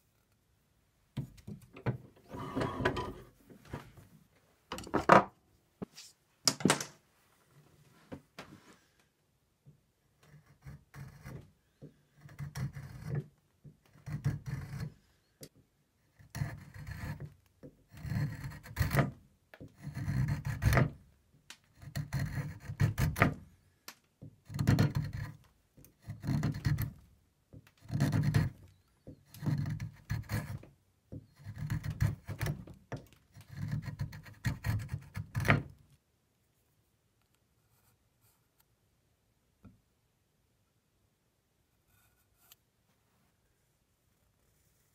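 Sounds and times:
file scraping wood: 2.3 - 3.3, 10.2 - 15.1, 16.1 - 21.0, 21.7 - 23.5, 24.5 - 27.1, 27.8 - 35.8.

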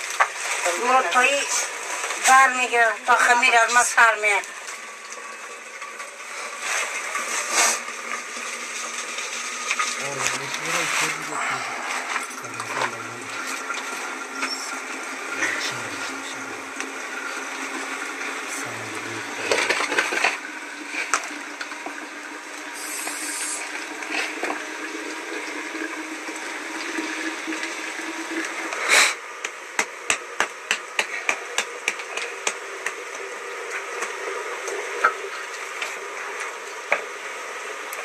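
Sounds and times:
wood fire hissing and crackling: 6.2 - 17.6, 22.6 - 24.4.

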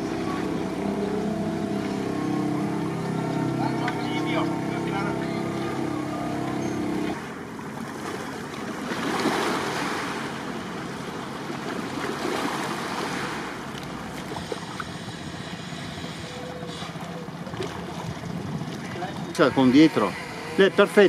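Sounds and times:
small waves lapping: 0.0 - 21.0
wind noise on microphone: 17.9 - 19.4.

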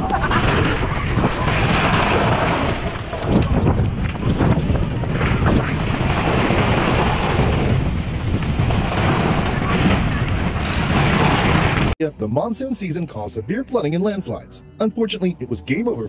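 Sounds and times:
rock crashes: 0.0 - 12.0
rumble of falling rock: 0.0 - 12.0.

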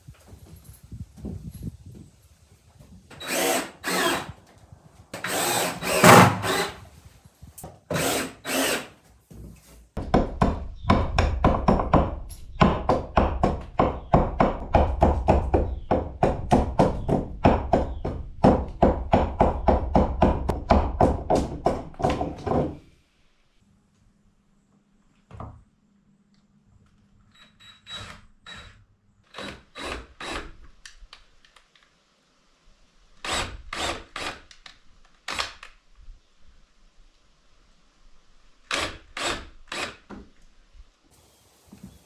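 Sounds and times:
hatchet chopping wood: 10.0 - 22.8.

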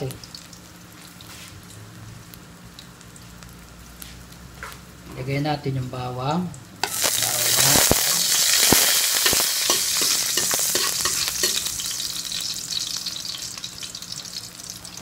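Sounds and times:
garlic sizzling in hot oil: 0.0 - 5.0, 6.5 - 15.0
metal spatula clicking on pan: 9.2 - 11.7.

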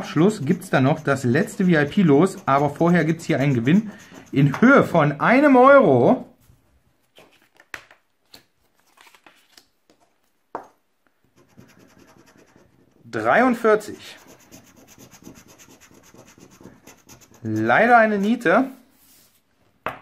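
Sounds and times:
faint rubbing of scratch card: 0.0 - 4.9, 11.4 - 13.0, 13.9 - 18.4.

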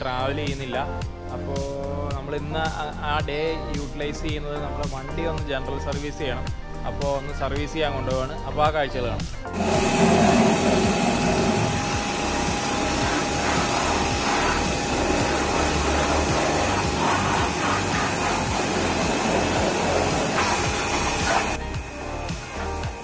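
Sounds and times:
pressure washer jet hissing: 9.5 - 23.0
washer motor hum: 9.6 - 23.0.

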